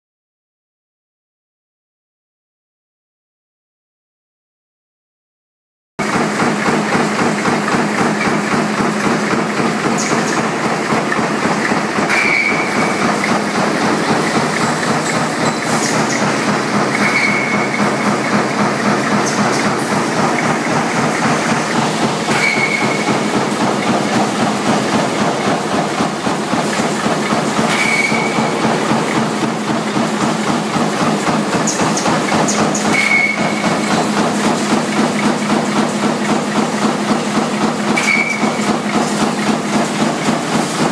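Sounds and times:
punch press striking: 6.0s - 35.8s
short high squeal: 12.1s - 13.3s, 14.6s - 16.0s, 17.0s - 17.8s, 22.3s - 23.2s, 27.7s - 29.1s, 32.9s - 33.6s, 38.0s - 38.5s.

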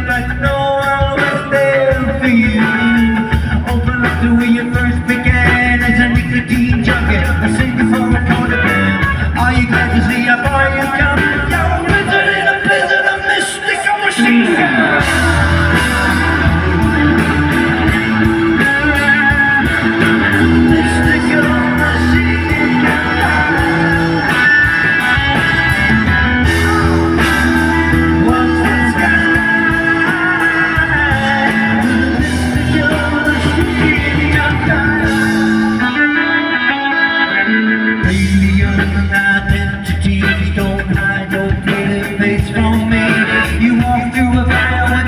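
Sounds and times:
bass guitar: 0.0s - 45.0s
drums: 0.0s - 45.0s
electric guitar: 0.0s - 45.0s
organ: 14.2s - 39.4s.

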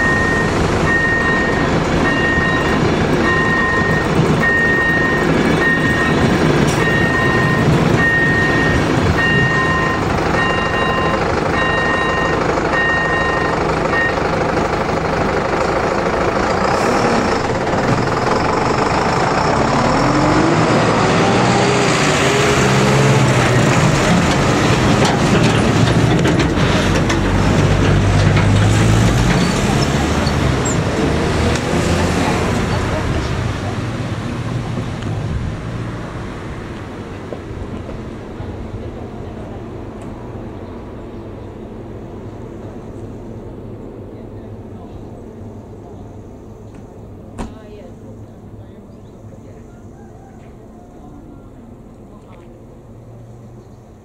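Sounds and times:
level crossing bell beeping: 0.0s - 14.3s
truck engine running: 0.0s - 49.7s
car engines revving: 0.0s - 50.0s
train coaches rumbling: 0.0s - 54.0s.

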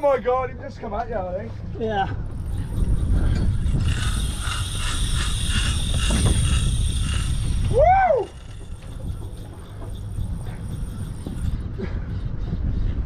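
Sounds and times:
wind rumbling on microphone: 0.2s - 13.0s
fishing reel gears whirring: 1.9s - 12.9s
person shouting woo: 7.7s - 8.4s.

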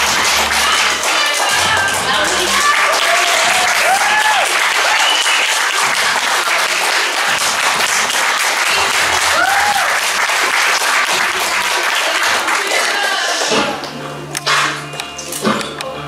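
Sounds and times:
audience clapping and cheering: 0.0s - 14.8s
whoops: 2.6s - 5.6s, 9.2s - 10.0s.

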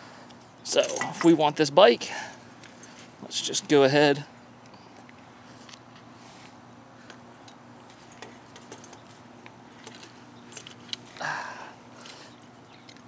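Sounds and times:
metal chain links clinking: 0.7s - 1.4s, 9.8s - 11.0s.

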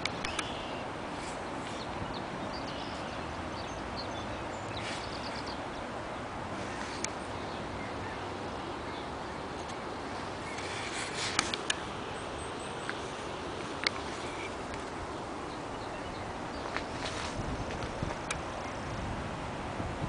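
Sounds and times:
sharp clicks: 0.0s - 0.6s
river rushing: 0.0s - 20.0s.

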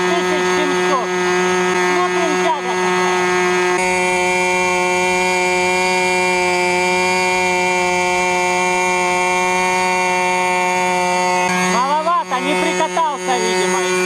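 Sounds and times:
model aircraft engine running: 0.0s - 14.0s.

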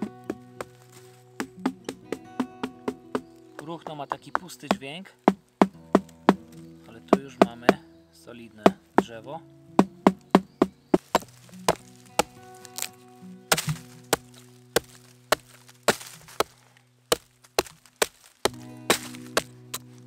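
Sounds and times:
chopping into wood: 1.4s - 7.8s, 9.8s - 12.9s, 13.5s - 19.9s.

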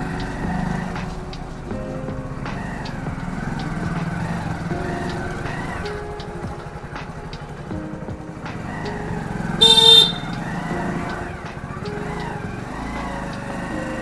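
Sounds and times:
motorcycle engine running: 0.0s - 14.0s
loud horn beep: 9.6s - 10.4s.

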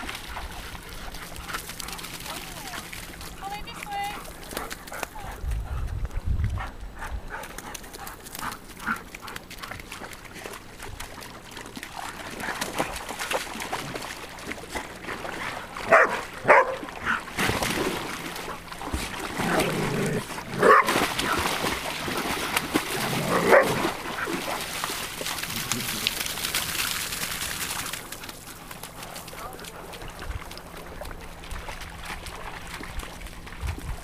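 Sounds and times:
water splashing: 0.0s - 5.0s, 8.0s - 34.0s
dogs barking: 15.9s - 17.3s, 20.6s - 21.0s, 23.2s - 24.3s.

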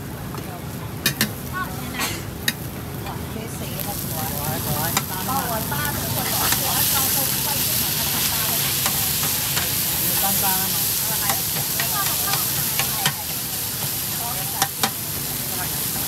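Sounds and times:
food sizzling in a wok: 1.0s - 16.0s
spatulas scraping a wok: 4.0s - 16.0s.

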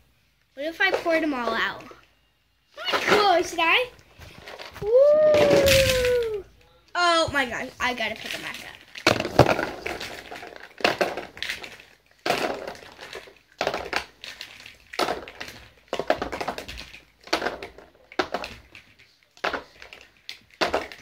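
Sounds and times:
plastic capsules clattering: 7.9s - 21.0s.

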